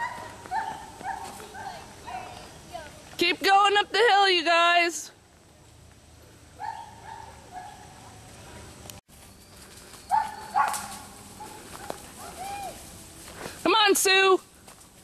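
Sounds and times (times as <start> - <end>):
puppies yipping and whining: 9.4 - 11.1.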